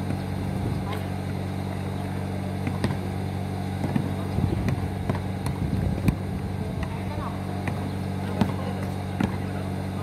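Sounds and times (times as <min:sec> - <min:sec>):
low mechanical hum: 0:00.0 - 0:10.0
basketball knocks on concrete: 0:02.6 - 0:03.0, 0:03.8 - 0:06.2, 0:09.2 - 0:09.5.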